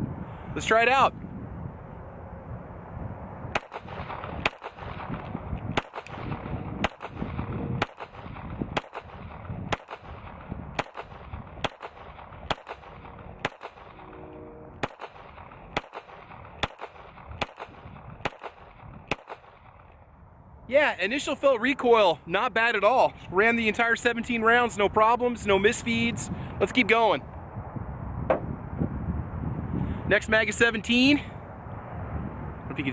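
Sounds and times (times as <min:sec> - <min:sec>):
pistol shots: 0:03.5 - 0:14.1, 0:14.8 - 0:19.9.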